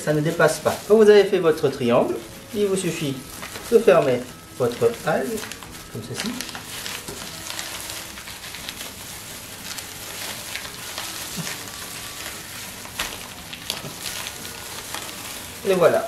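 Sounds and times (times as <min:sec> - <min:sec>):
dry seaweed sheet crackling: 0:00.0 - 0:16.0
plastic gloves rustling: 0:00.0 - 0:16.0.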